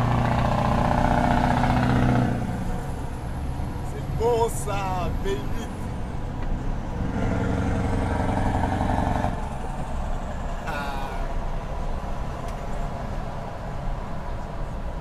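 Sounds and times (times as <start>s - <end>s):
truck engine rumbling: 0.0s - 15.0s.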